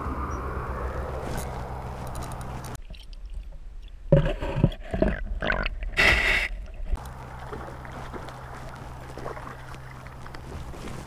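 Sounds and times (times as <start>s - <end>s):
stream background: 0.0s - 11.0s
low steady hum: 6.6s - 11.0s.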